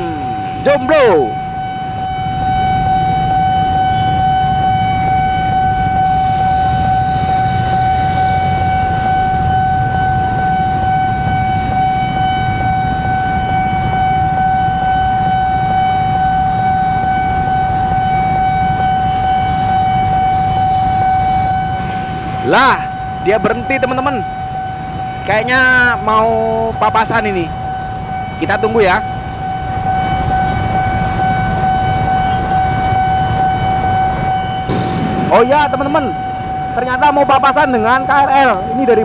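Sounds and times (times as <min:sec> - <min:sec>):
steady high-pitched tone: 0:00.0 - 0:03.6, 0:21.8 - 0:39.0
locomotive engine rumble: 0:00.0 - 0:39.0.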